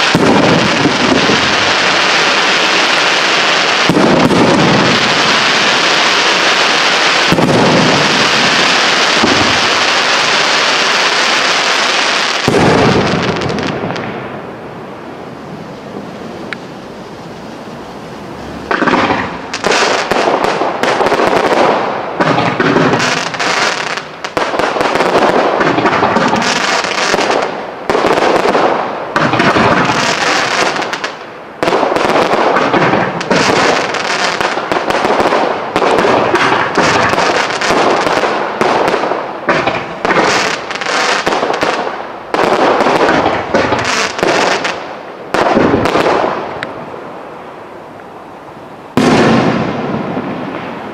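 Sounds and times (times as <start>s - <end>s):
fireworks popping and crackling: 0.0s - 14.6s, 15.2s - 46.8s, 48.9s - 50.9s
low hiss: 0.0s - 50.9s.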